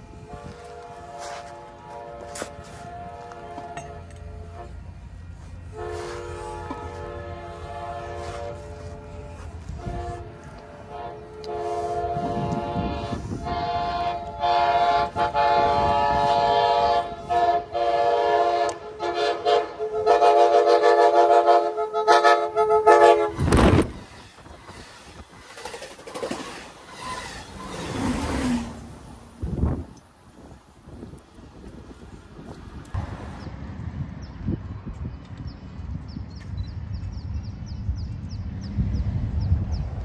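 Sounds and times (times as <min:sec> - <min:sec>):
locomotive horn blasts: 0:00.0 - 0:24.0
faint train rumble: 0:00.0 - 0:40.0.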